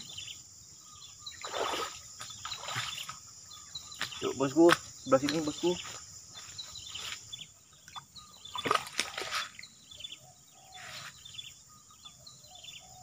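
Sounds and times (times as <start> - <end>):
birds chirping: 0.0 - 13.0
insect droning: 0.0 - 13.0
footsteps splashing through water: 1.4 - 3.2, 8.5 - 9.5.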